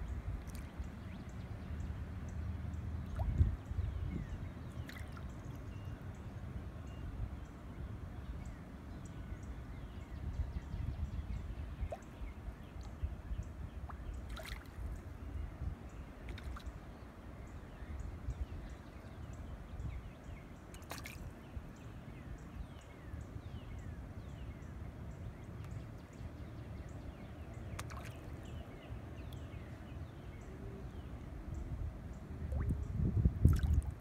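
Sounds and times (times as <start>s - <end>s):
low steady rumble: 0.0s - 34.0s
water lapping at pier: 2.8s - 5.6s, 11.8s - 15.1s, 16.2s - 17.0s, 20.7s - 21.5s, 27.6s - 29.6s, 32.4s - 34.0s.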